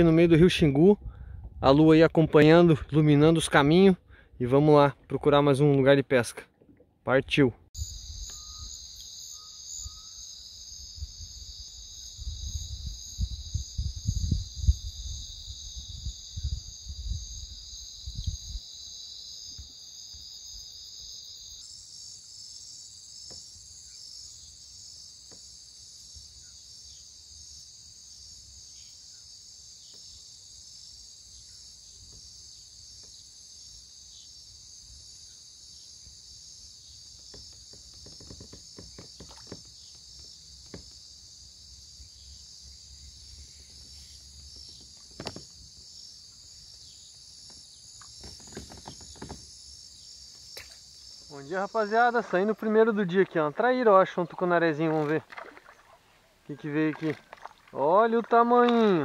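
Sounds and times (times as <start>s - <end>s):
crickets trilling: 7.3s - 59.0s
faint knocks: 37.2s - 41.0s.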